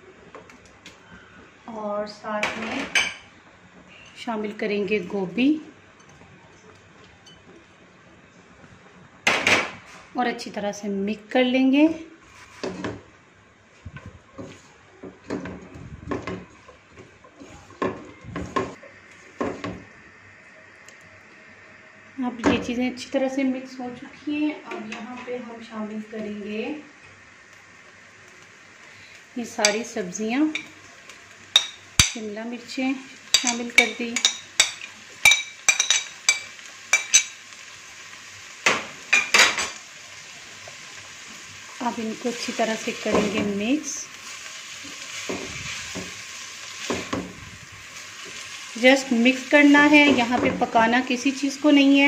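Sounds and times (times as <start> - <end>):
glass bowl clinking against wok: 33.4 - 37.4.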